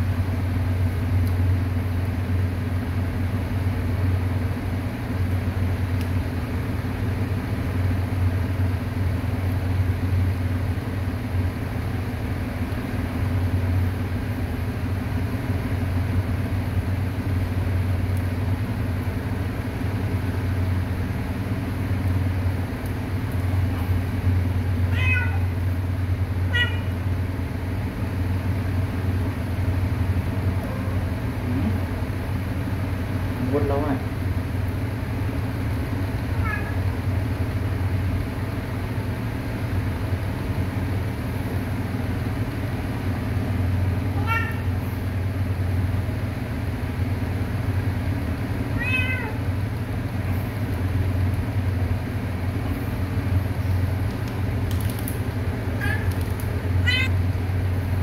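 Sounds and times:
steady low hum: 0.0 - 58.0
cat meowing: 24.9 - 25.5, 26.5 - 27.0, 36.3 - 36.8, 44.1 - 44.8, 48.8 - 49.5, 55.8 - 56.2, 56.8 - 57.2.

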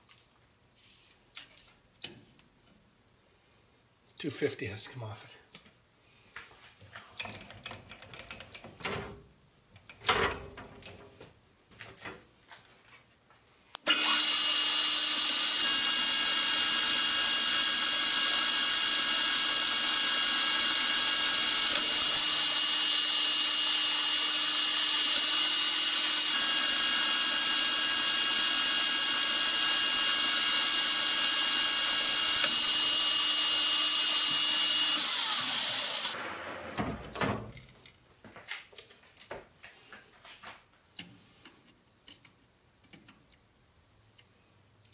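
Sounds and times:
metal lathe whining: 13.9 - 36.2.

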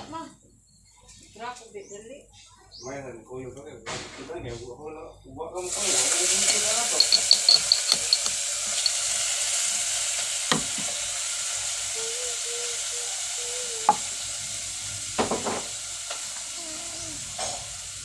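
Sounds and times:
high hiss: 5.7 - 18.0.

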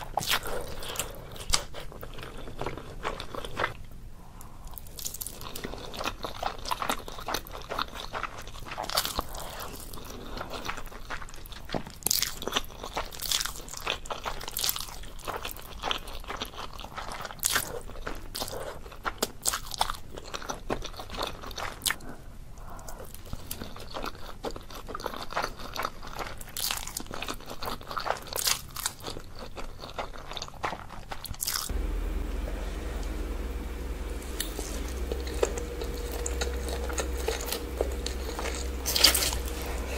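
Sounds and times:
steady low hum: 31.7 - 39.9.

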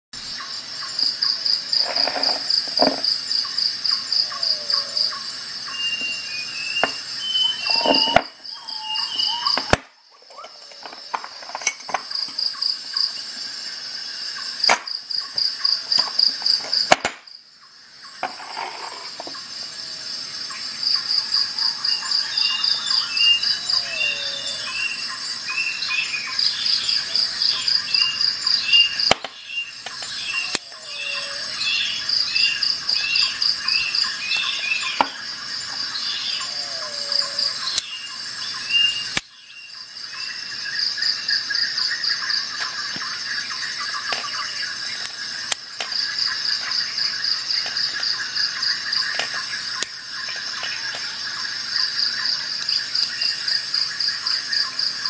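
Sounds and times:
insects trilling: 0.2 - 55.0
bird chirps: 3.4 - 11.0, 21.0 - 41.0.

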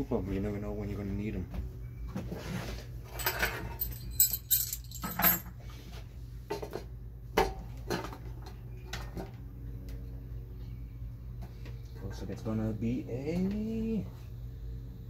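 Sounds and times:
metal tools clinking on workbench: 3.1 - 5.5.

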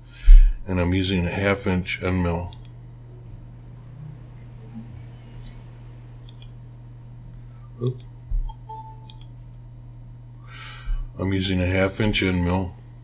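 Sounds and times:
steady low hum: 0.0 - 13.0
computer mouse clicks: 6.2 - 6.6, 7.8 - 9.3.

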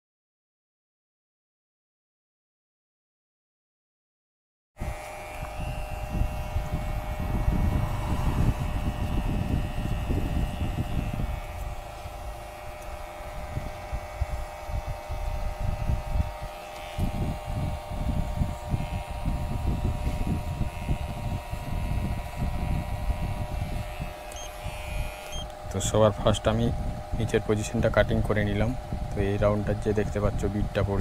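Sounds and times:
electric hair clippers buzzing: 4.8 - 31.0
low rumbling: 5.4 - 16.5.

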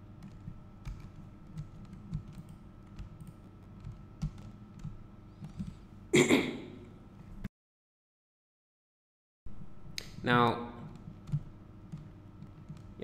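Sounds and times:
keyboard typing: 0.2 - 5.8, 10.8 - 13.0.

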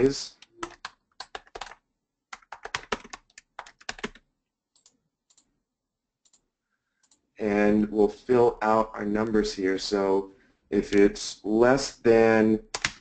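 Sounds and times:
typing on computer keyboard: 0.4 - 4.2, 12.7 - 13.0.

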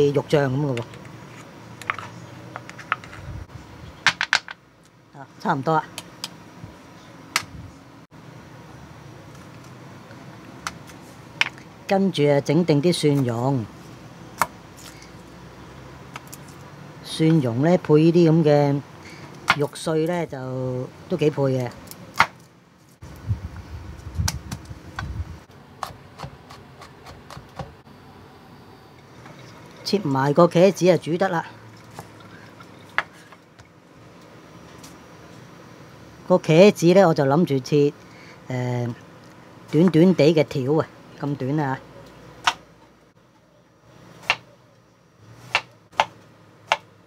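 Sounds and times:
knife chopping on wooden board: 45.5 - 46.9.

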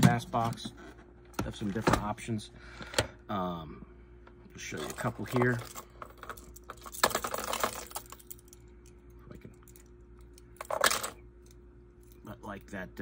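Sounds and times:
plastic lures clicking and clattering: 4.8 - 9.0.

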